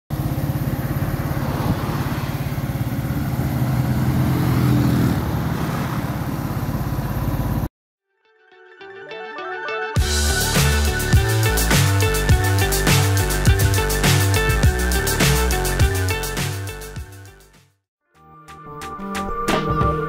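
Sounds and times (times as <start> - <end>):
motorcycle engine running: 0.1 - 7.7, 10.0 - 16.4
road and wind noise: 0.1 - 7.7.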